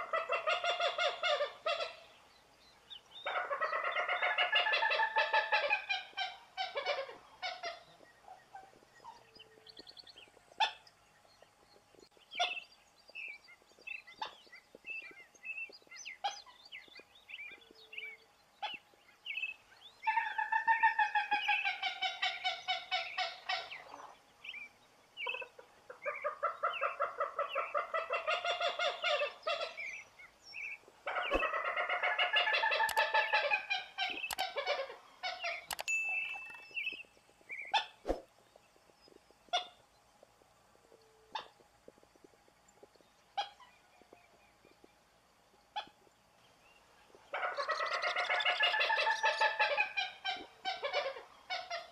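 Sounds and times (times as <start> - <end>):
short bird calls: 28.7 - 31.7
gallinule harsh clucking: 31.0 - 35.8.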